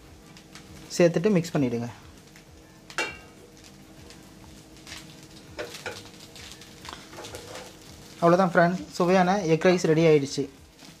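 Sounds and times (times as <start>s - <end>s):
spatula stirring rice in a pan: 4.8s - 8.3s.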